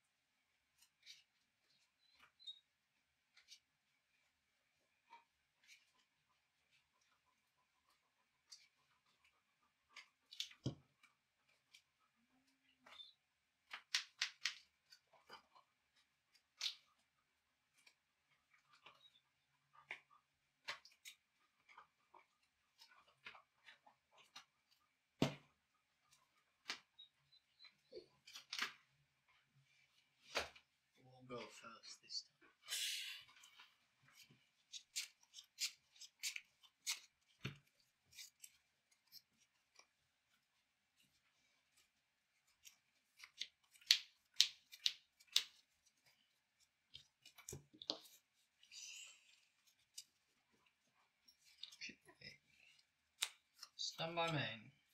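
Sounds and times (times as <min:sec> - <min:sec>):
cards being shuffled: 0:12.8 - 0:15.6, 0:28.2 - 0:28.8, 0:33.3 - 0:53.8
cards snapping while shuffled: 0:13.7 - 0:14.7, 0:42.6 - 0:45.6.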